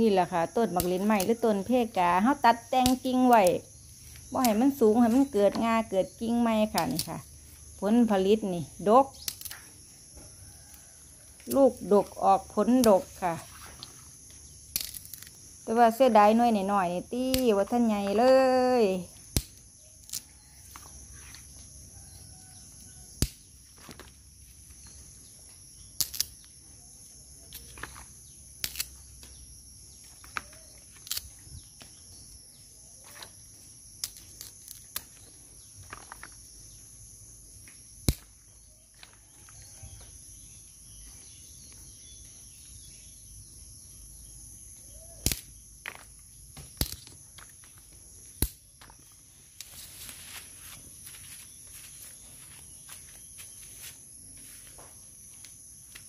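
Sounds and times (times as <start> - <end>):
high-pitched insect drone: 0.0 - 48.4
clicks and knocks of branches: 45.0 - 51.5.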